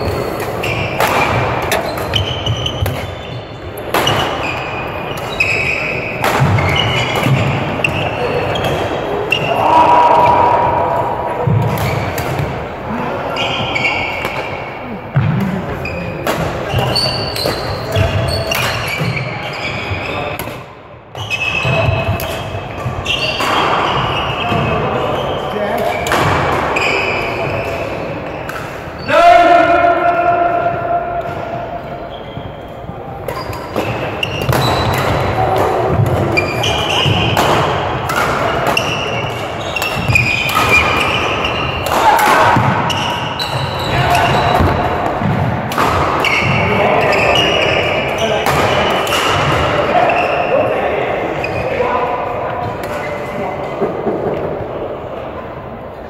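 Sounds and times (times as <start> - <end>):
sneakers squeaking on court: 0.0 - 9.5, 13.3 - 20.6, 21.2 - 26.1, 26.7 - 29.1, 32.1 - 45.5, 46.1 - 50.6
voices in hall: 0.0 - 56.0
racket hitting shuttlecock: 0.1 - 3.2, 3.8 - 9.5, 33.2 - 47.8.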